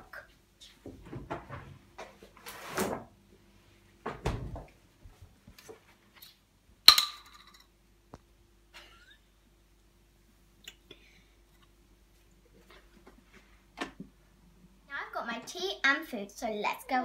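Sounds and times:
rustles and knocks: 0.6 - 3.1.

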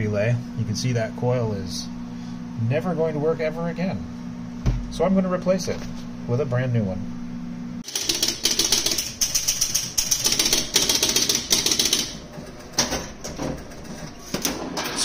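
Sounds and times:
pinball relays clicking: 7.8 - 15.0.

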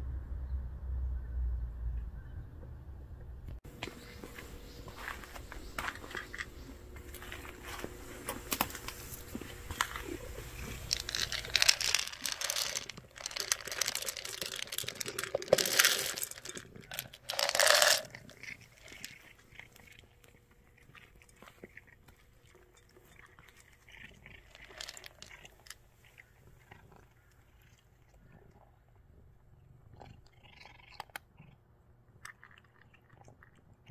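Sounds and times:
cat crunching dry kibble: 5.9 - 28.4, 29.9 - 33.7
rustling rattling bursts: 10.6 - 18.3.

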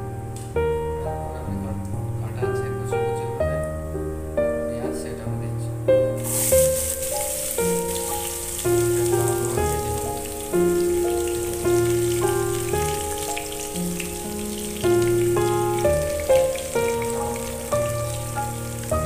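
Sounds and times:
background music: 0.0 - 19.0
onions sizzling in hot oil: 6.2 - 19.0.

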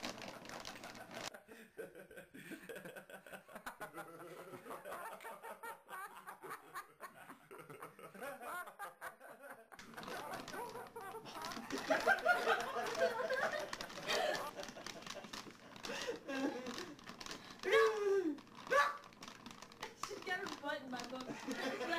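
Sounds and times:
plastic bag crinkling: 0.0 - 1.3, 9.8 - 21.9
people laughing quietly: 0.0 - 19.0, 19.7 - 21.9.

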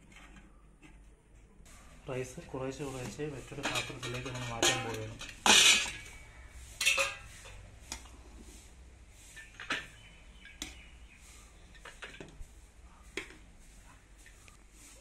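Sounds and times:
utensil scraping rice from pot: 1.7 - 15.0
metal pot clattering: 3.1 - 7.6.

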